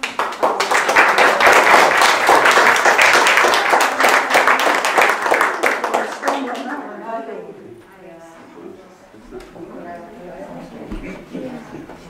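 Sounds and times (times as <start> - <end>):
audience clapping: 0.0 - 6.9.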